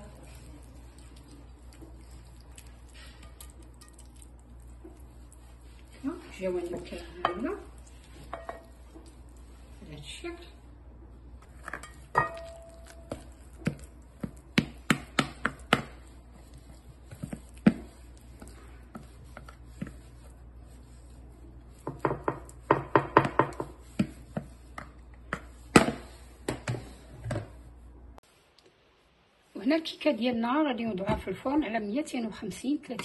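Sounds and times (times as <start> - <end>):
spatula scraping and knocking bowl: 0.9 - 9.4, 11.4 - 27.5.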